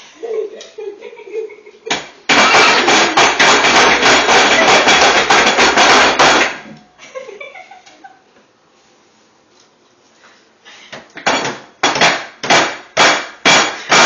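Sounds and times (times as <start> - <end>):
hands clapping and slapping: 1.9 - 6.6.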